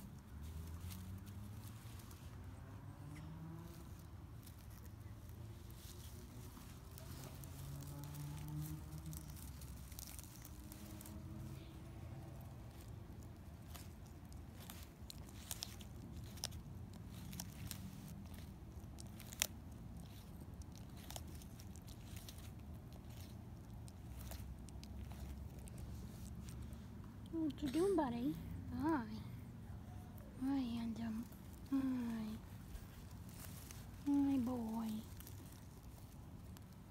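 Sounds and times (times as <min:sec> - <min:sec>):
tortoise chewing crunchily: 0:00.0 - 0:36.9.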